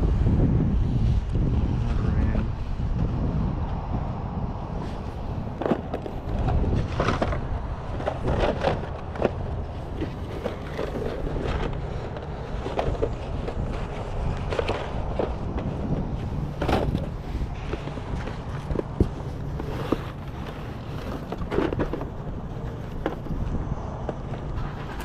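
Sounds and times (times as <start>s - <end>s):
steady low rumble: 0.0s - 25.0s
cardboard boxes shuffled: 5.4s - 23.4s.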